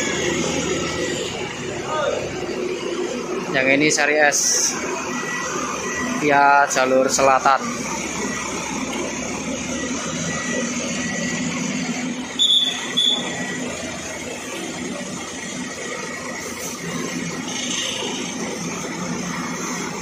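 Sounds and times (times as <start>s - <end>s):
bus diesel engine running: 0.0s - 20.0s
shrill whistle blasts: 12.4s - 13.4s.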